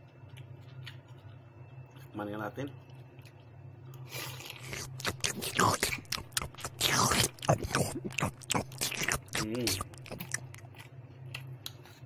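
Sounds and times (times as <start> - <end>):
chewing close to microphone: 2.9 - 12.0.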